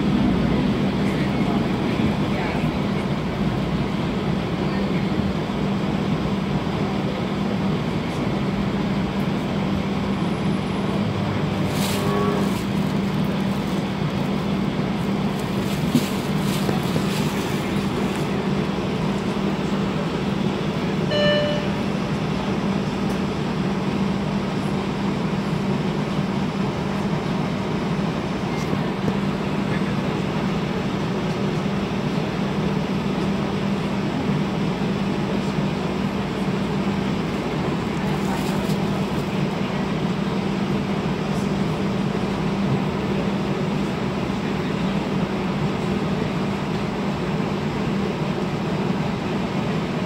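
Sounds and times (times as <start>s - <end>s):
street traffic passing: 0.0s - 50.0s
streetcar interior hum: 0.0s - 50.0s
short tone: 11.6s - 12.7s, 21.1s - 21.9s.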